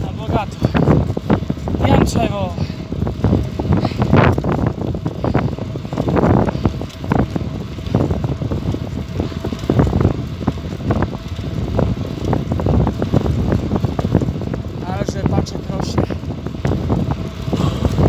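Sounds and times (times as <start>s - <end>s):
bicycle road noise: 0.0s - 18.0s
wind buffeting microphone: 0.0s - 18.0s.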